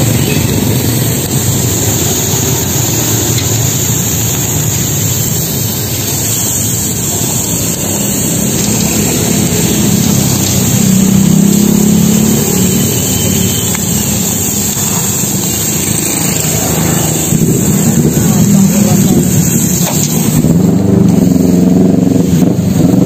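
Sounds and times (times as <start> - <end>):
food sizzling on griddle: 0.0 - 23.0
road traffic rumbling: 0.0 - 23.0.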